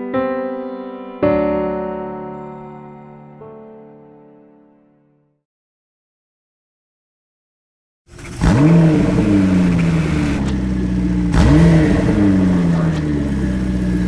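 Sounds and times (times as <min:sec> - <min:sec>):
car engine fast idle: 0:08.1 - 0:14.0
sports car engine revving: 0:08.1 - 0:14.0.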